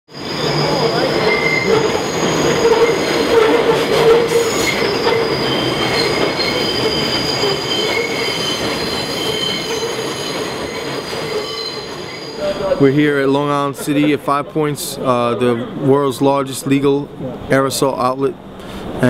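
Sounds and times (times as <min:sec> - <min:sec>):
high wheel squeal: 0:00.1 - 0:12.9
train rumble and clatter: 0:00.1 - 0:15.0.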